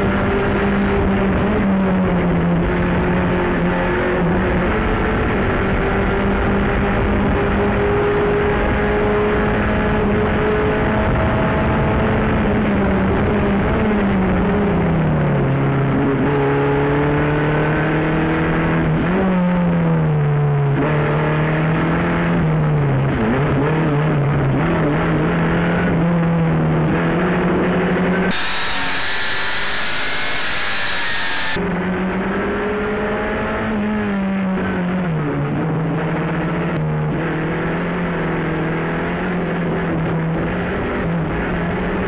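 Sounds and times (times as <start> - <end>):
wind and road noise: 0.0 - 31.6, 32.3 - 42.0
race car engine at racing speed: 0.0 - 42.0.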